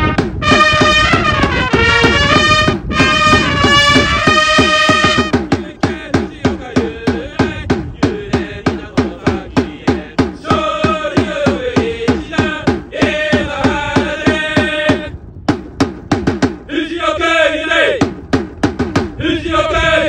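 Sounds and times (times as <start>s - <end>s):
marching drum beating: 0.0s - 16.7s, 18.0s - 19.2s
voices chanting: 5.1s - 15.1s, 16.7s - 18.1s, 19.2s - 20.0s.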